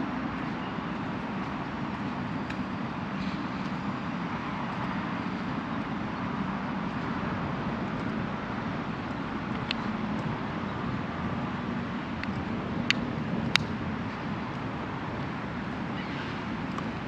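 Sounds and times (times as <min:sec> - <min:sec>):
distant city traffic hum: 0:00.0 - 0:17.0
sharp clicks: 0:04.6 - 0:08.3, 0:12.2 - 0:13.8.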